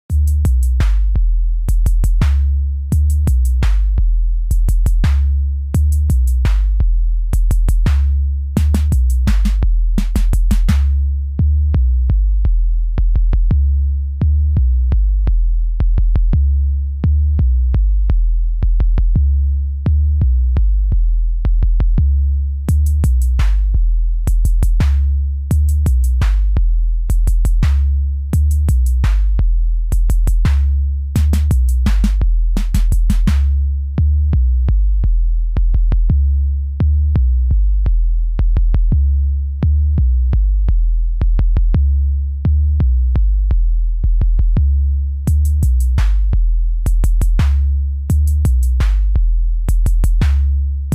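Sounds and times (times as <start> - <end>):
deep repeating bass line: 0.0 - 50.9
drum machine beat: 0.1 - 11.1, 12.5 - 13.6, 15.8 - 16.4, 18.6 - 19.2, 20.9 - 33.7, 35.0 - 36.2, 37.8 - 39.0, 40.7 - 41.9, 43.5 - 50.9.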